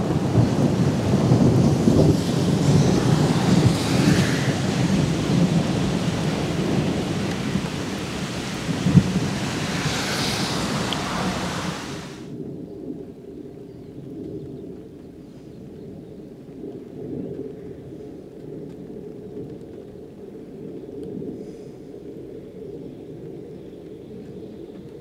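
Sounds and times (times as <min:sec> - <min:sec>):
rain hissing: 0:00.0 - 0:12.3
rolling thunder rumble: 0:00.0 - 0:12.6
wind: 0:00.0 - 0:25.0.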